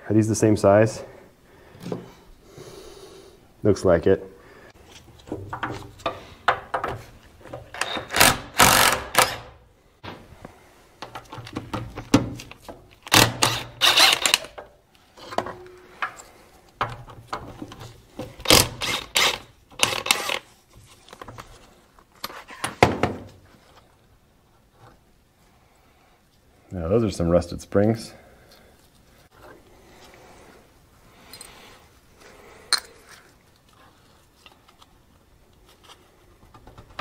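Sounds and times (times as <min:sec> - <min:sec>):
cordless drill running: 0:13.1 - 0:14.4.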